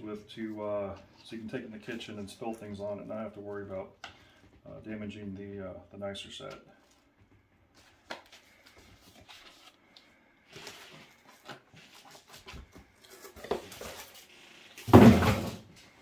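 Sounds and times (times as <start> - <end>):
cardboard scraping: 10.5 - 15.7
cardboard box rustling and knocking: 14.8 - 15.7.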